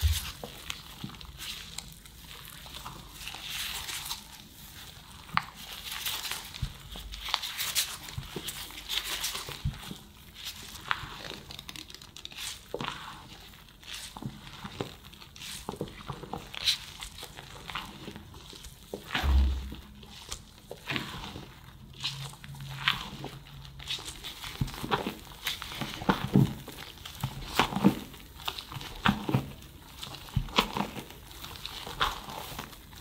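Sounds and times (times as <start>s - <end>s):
dull thump: 0.0s - 0.4s, 19.2s - 20.0s.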